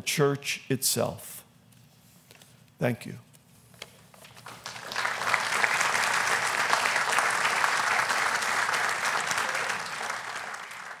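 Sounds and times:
audience applause: 4.4 - 11.0.

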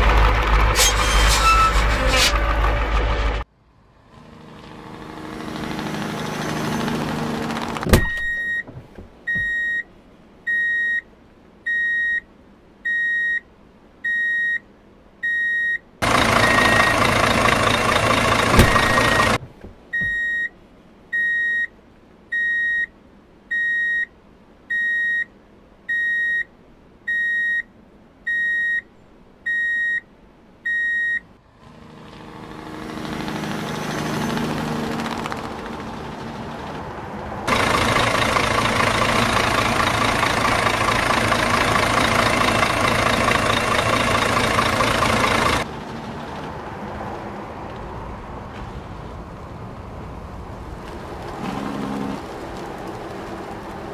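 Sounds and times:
engine running: 0.0 - 9.6, 16.0 - 20.2, 31.4 - 47.9, 50.8 - 53.9
rushing engine noise: 0.0 - 9.6, 16.0 - 20.2, 31.5 - 53.9
reversing alarm beeps: 9.3 - 9.8, 11.7 - 12.2, 15.2 - 15.8, 16.4 - 17.0, 20.0 - 20.5, 21.2 - 21.7, 22.4 - 22.9, 23.5 - 24.1, 24.7 - 25.3, 25.9 - 26.5, 27.1 - 27.7, 28.3 - 28.8, 29.5 - 30.0, 30.7 - 31.2.

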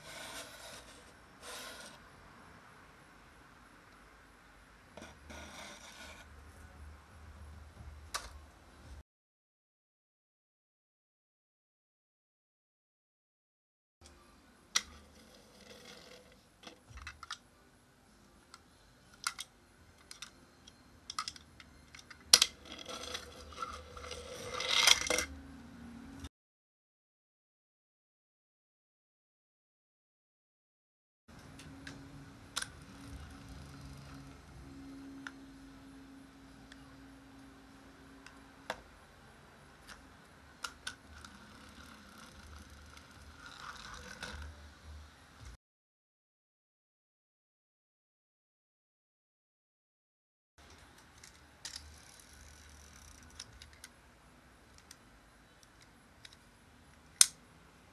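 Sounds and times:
toy train clicks and knocks: 19.2 - 25.3, 50.6 - 54.0
toy train wheels rattling: 21.1 - 25.3, 40.6 - 44.5.

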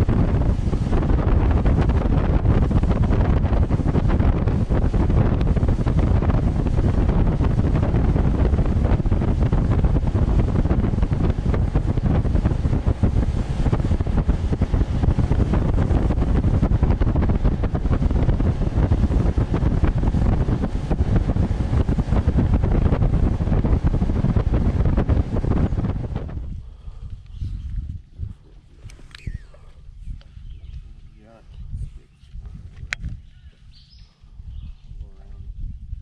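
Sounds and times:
rushing water of wake: 0.0 - 26.3
outboard motor: 0.0 - 34.6
wind buffeting microphone: 0.0 - 36.0.

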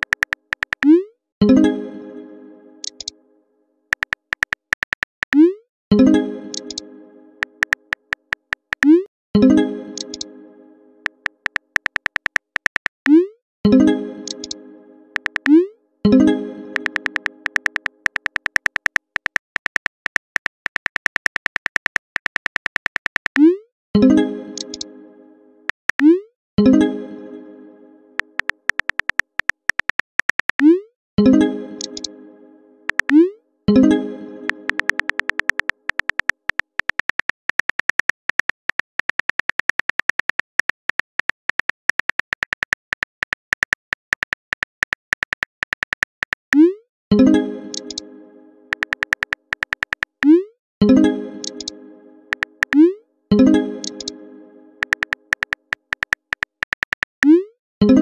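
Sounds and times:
phone keyboard clicks: 0.0 - 0.9, 3.9 - 5.4, 6.5 - 6.8, 7.4 - 9.0, 10.0 - 10.2, 11.1 - 13.1, 14.2 - 14.6, 15.2 - 15.6, 16.7 - 23.4, 24.6 - 24.8, 28.2 - 30.7, 31.8 - 32.1, 32.9 - 33.2, 34.7 - 46.6, 47.7 - 48.0, 48.7 - 50.2, 51.4 - 51.7, 52.3 - 52.8, 53.8 - 54.1, 54.8 - 57.2.

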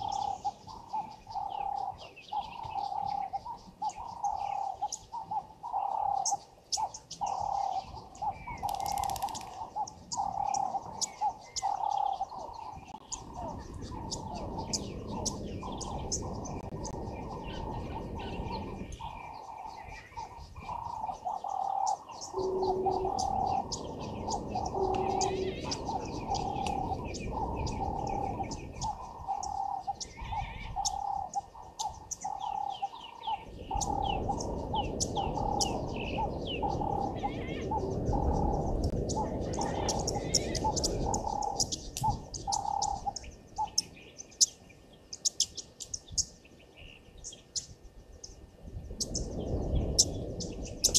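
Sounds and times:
high bird chirps and twitters: 0.0 - 48.4
bird low repeating note: 7.1 - 44.0.

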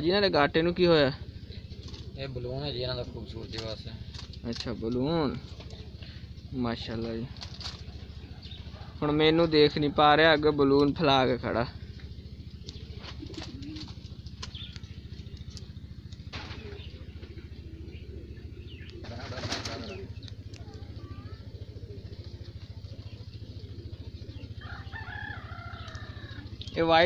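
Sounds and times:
low hum: 0.0 - 26.8
pigeon flapping wings: 12.7 - 14.6, 19.0 - 20.0.

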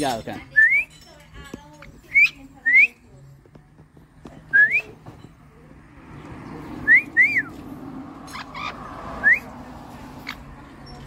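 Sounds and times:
short whistles: 4.5 - 5.0, 6.8 - 7.6, 9.2 - 9.5.

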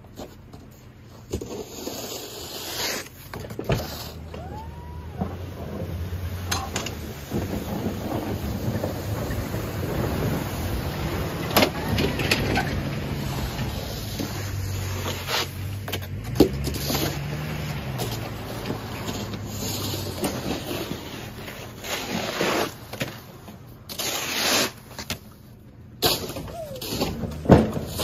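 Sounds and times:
scraping in snow and slush: 1.2 - 25.0
truck engine humming: 3.1 - 22.2.

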